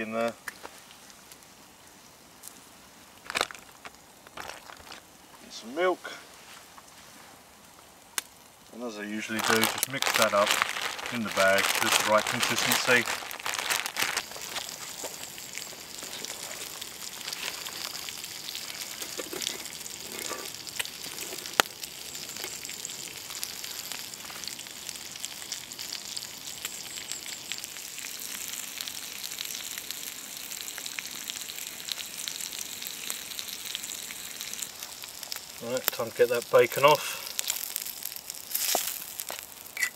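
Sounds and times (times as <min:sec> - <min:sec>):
bacon sizzling: 0:00.0 - 0:39.9
crackles and pops: 0:00.2 - 0:05.9, 0:06.6 - 0:39.9
plastic bag crinkling: 0:03.2 - 0:05.1, 0:09.1 - 0:24.7, 0:33.8 - 0:39.9.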